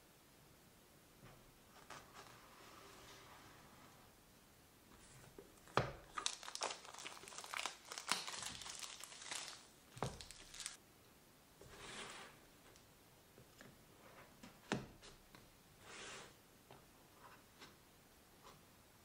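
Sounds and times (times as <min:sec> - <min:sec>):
plastic shrink-wrap tearing and crinkling: 0:06.0 - 0:10.8.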